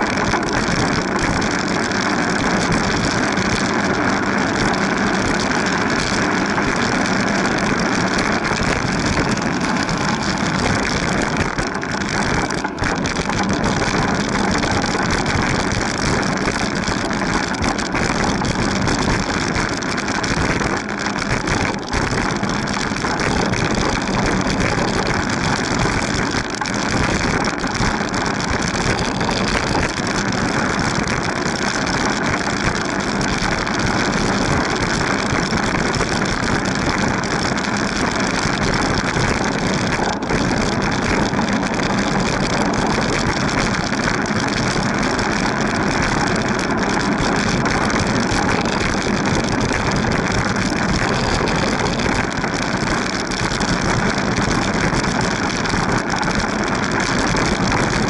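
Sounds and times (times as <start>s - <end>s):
wind on microphone: 47.7s - 54.0s
low rumble: 47.9s - 54.7s.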